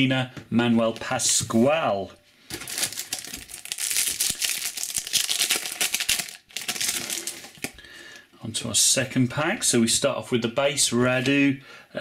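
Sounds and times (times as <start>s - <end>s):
wrapper tearing and crinkling: 2.5s - 7.8s.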